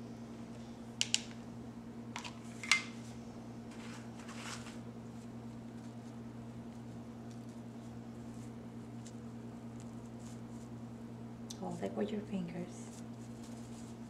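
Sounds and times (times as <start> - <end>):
steady low hum: 0.0 - 14.0
soft rustle of petals: 3.8 - 10.8, 12.8 - 14.0.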